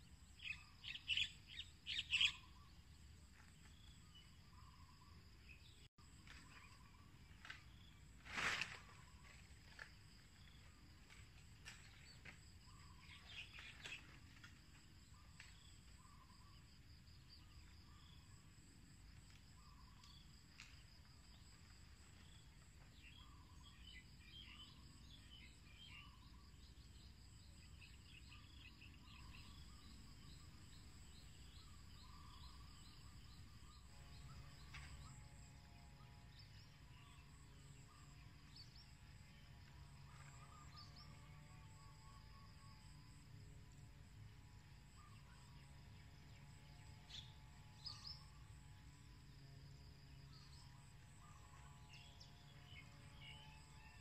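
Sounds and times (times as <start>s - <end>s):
bird chirps: 0.3s - 2.8s
faint hum of steady tones: 9.0s - 54.0s.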